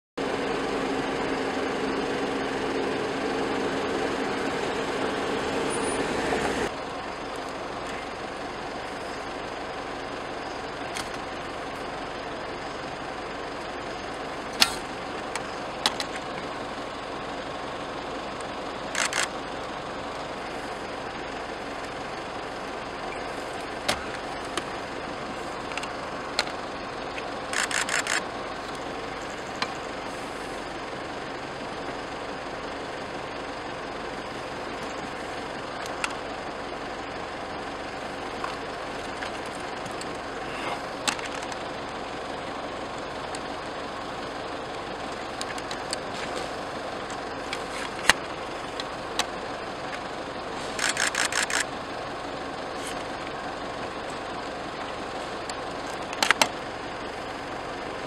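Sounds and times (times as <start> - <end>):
vehicle engine running: 0.2 - 58.0
sharp clicks and knocks: 14.6 - 16.5.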